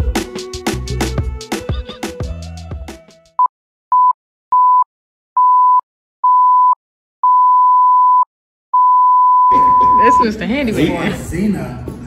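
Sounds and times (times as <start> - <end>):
high countdown beeps: 5.4 - 10.4.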